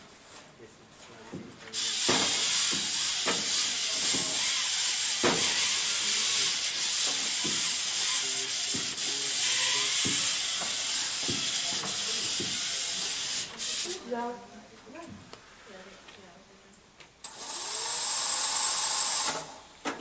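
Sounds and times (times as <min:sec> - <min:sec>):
robot motors whining and knocking: 0:01.8 - 0:13.9
steady loud hiss: 0:01.8 - 0:14.0.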